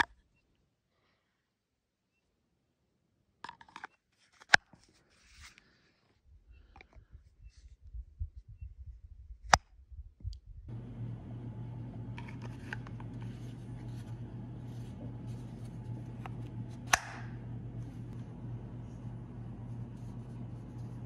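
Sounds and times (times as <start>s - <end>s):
steady low hum: 10.7s - 21.0s
knife snapping into leather sheath: 16.9s - 17.3s.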